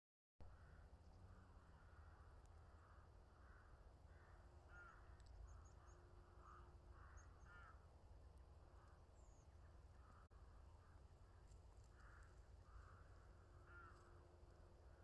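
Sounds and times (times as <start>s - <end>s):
distant birds calling: 0.4s - 15.0s
low steady rumble: 0.5s - 15.0s.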